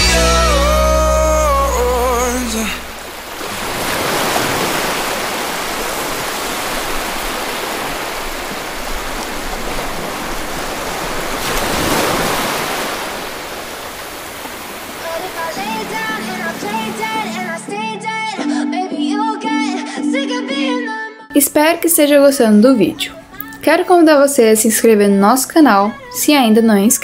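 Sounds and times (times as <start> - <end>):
pop song with singing: 0.0 - 3.0, 15.0 - 21.4, 22.2 - 27.0
ocean surf washing ashore: 1.1 - 18.0.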